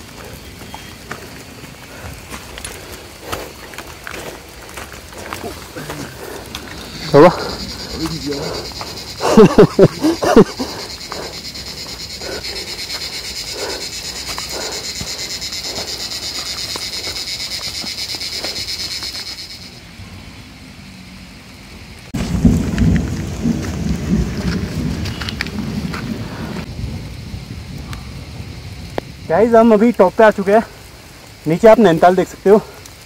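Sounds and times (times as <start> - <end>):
thunder rumbling: 0.0 - 20.9, 22.1 - 31.1
high-pitched insect drone: 0.0 - 26.2
rain in a forest: 0.0 - 33.0.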